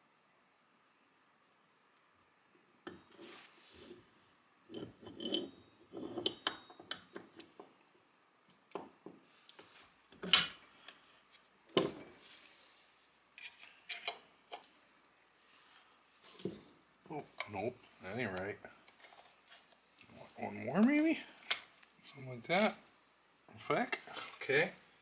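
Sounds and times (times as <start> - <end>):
metal parts clinking: 4.7 - 7.2.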